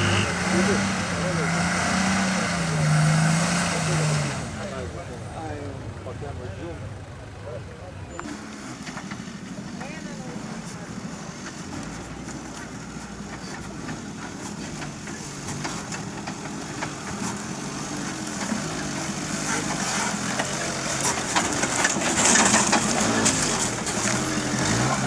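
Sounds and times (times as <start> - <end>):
off-road vehicle engine under load: 0.0 - 25.0
tyres clicking and crackling: 10.6 - 25.0.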